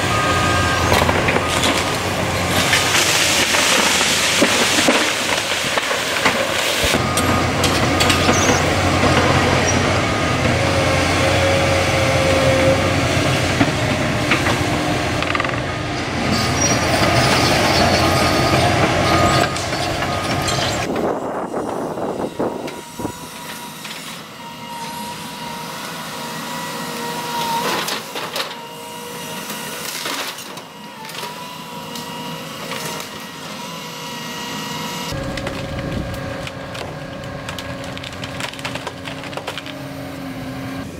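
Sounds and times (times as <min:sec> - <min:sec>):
excavator diesel engine running: 0:00.0 - 0:40.9
hydraulic whine: 0:00.0 - 0:40.9
sharp knocks and cracks of wood: 0:35.3 - 0:39.8.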